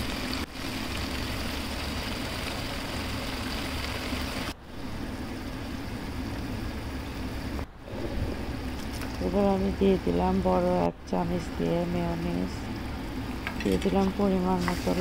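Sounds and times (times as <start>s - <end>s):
low hum: 4.6s - 15.0s.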